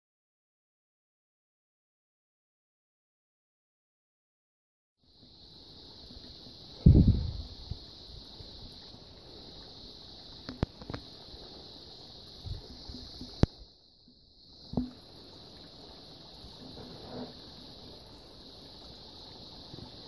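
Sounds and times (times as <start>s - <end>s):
small spring trickling over rocks: 5.1s - 20.0s.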